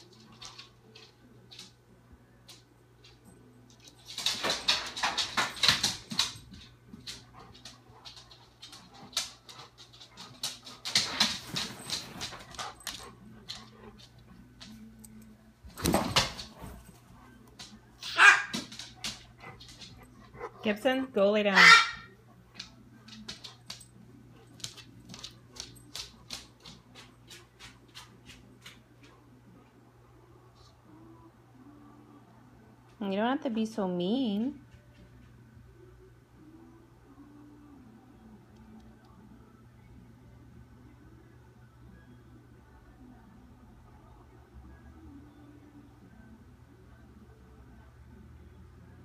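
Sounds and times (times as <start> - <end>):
faint low hum: 0.0 - 21.4, 22.0 - 49.0
dog barking: 18.0 - 18.7, 21.5 - 22.2.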